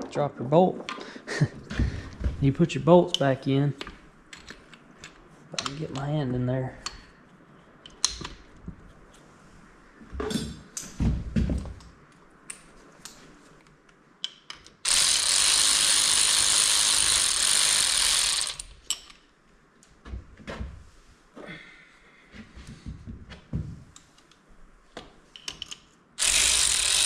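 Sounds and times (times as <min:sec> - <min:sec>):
power ratchet running: 0:14.8 - 0:18.8, 0:26.2 - 0:27.0.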